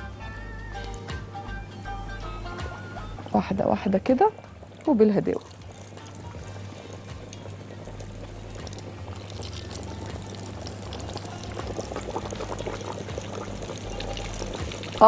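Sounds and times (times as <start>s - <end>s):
chicken deep-frying in hot oil: 3.4s - 15.0s.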